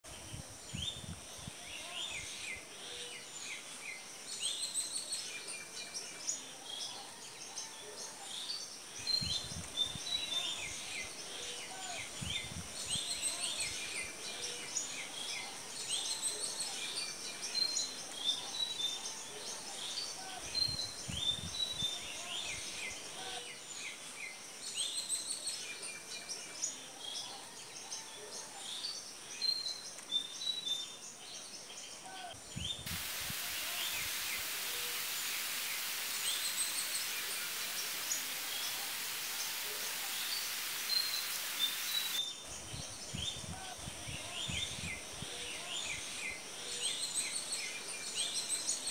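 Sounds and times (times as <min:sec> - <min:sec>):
small birds chirping: 0:28.7 - 0:45.1
thin high-pitched hiss: 0:32.6 - 0:48.8.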